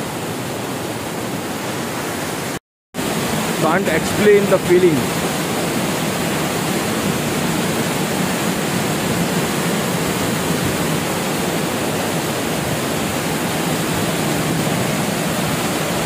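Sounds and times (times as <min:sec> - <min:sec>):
waterfall rushing over rocks: 0:00.0 - 0:16.0.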